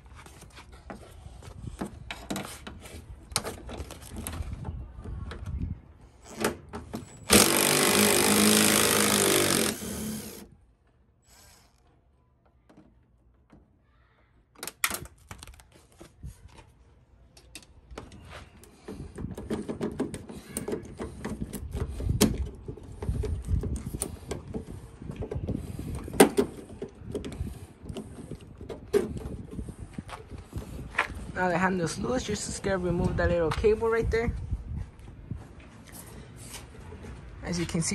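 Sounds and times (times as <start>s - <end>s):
cordless driver running: 7.3s - 10.5s.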